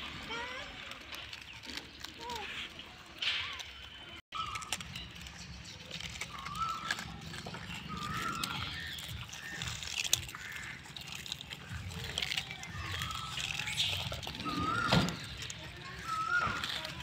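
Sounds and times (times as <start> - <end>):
biscuits crunching and chewed: 0.0 - 17.0
monkey calls: 6.4 - 17.0.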